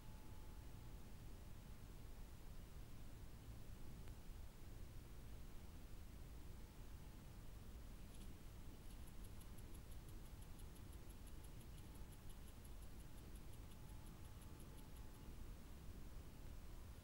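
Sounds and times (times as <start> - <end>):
low steady hiss and rumble: 0.0 - 17.0
faint rapid high-pitched ticking: 8.0 - 17.0.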